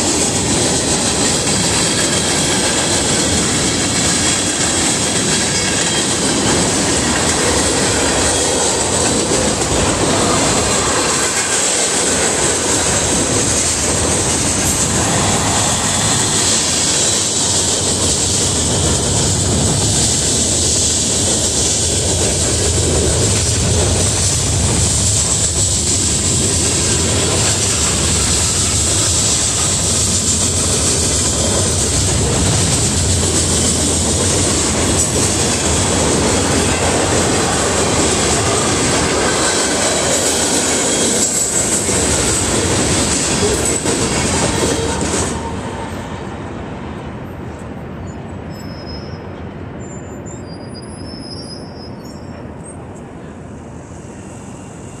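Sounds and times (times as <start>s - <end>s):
train wheels clattering on rails: 0.0s - 46.3s
high-pitched wheel squeal: 48.0s - 52.8s.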